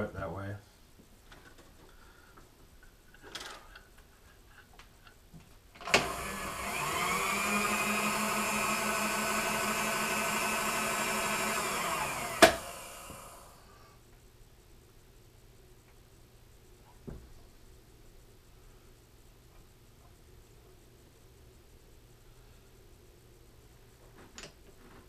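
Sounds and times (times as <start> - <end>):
milling machine motor whine: 5.8 - 13.6.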